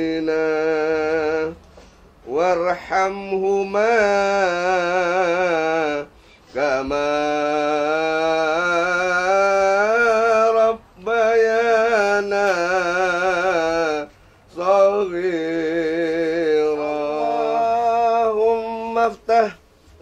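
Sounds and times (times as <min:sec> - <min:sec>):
man chanting a prayer: 0:02.2 - 0:19.6.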